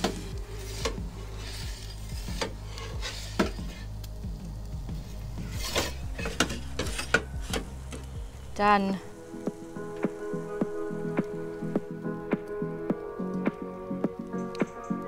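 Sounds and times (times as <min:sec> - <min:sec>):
metal pizza peel clicking and scraping: 0:00.0 - 0:03.8, 0:05.5 - 0:07.6.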